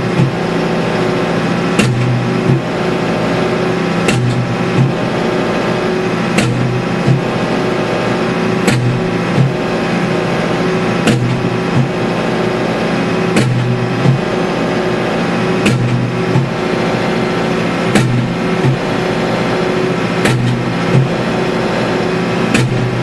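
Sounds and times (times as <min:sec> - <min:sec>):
tractor engine running: 0:00.0 - 0:23.0
post driver striking wooden post: 0:01.8 - 0:02.7, 0:04.0 - 0:05.1, 0:06.3 - 0:07.3, 0:08.6 - 0:09.6, 0:11.0 - 0:12.0, 0:13.4 - 0:14.3, 0:15.6 - 0:16.6, 0:17.9 - 0:18.9, 0:20.2 - 0:21.2, 0:22.5 - 0:22.9.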